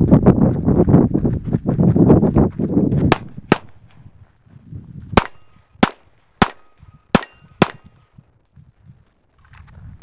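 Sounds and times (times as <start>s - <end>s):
footsteps on gravel: 0.0s - 5.8s, 8.5s - 10.0s
handgun shots: 3.1s - 3.8s, 5.2s - 8.0s.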